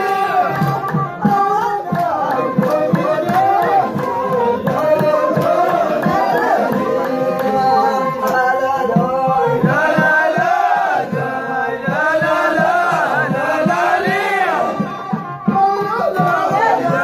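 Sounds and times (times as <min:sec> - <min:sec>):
frame drum beating: 0:00.0 - 0:07.8
men singing in chorus: 0:00.0 - 0:17.0.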